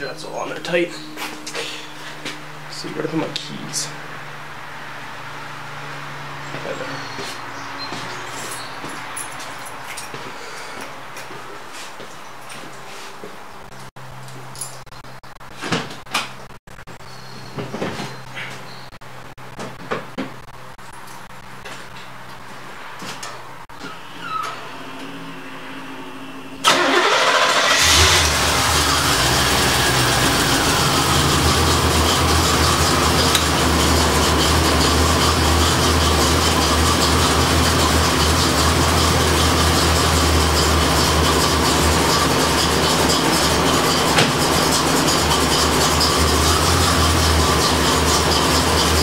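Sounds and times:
car engine cranking and idling: 0:24.7 - 0:49.0.

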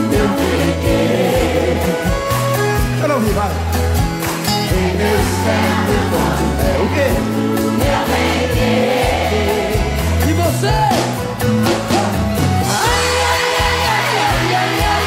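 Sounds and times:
men singing: 0:00.0 - 0:02.5, 0:04.5 - 0:10.3, 0:12.6 - 0:15.0
acoustic guitars: 0:00.0 - 0:15.0
bass: 0:00.0 - 0:15.0
drum kit steady beat: 0:00.0 - 0:15.0.

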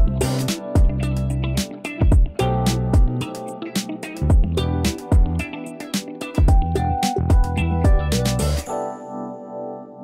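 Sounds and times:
drum beat: 0:00.0 - 0:01.0, 0:02.0 - 0:02.4, 0:03.0 - 0:03.2, 0:04.3 - 0:05.4, 0:06.0 - 0:08.1.

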